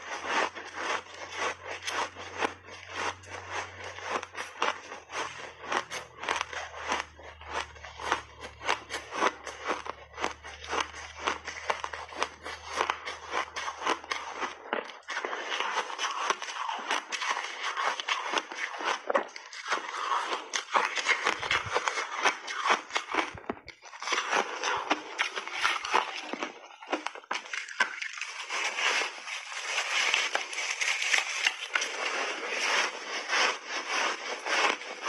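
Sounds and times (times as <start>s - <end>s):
ice crunching while chewed: 0.0s - 35.0s.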